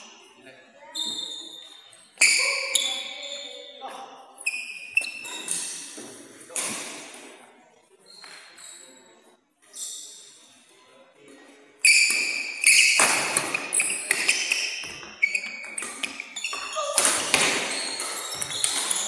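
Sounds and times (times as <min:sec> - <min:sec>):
sneakers squeaking on court: 0:00.9 - 0:03.8, 0:04.4 - 0:06.2, 0:11.8 - 0:19.0
rackets striking shuttlecock: 0:11.9 - 0:19.0.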